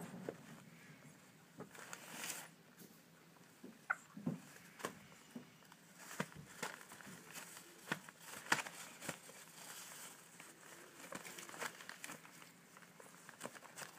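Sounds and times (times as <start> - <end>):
paper crinkling and rustling: 1.6 - 2.6, 4.4 - 13.9.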